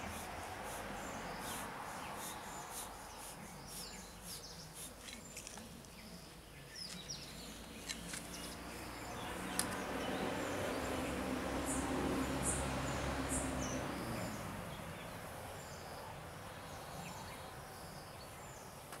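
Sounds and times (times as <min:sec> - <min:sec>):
birds chirping: 0:00.0 - 0:19.0
insects calling: 0:00.0 - 0:19.0.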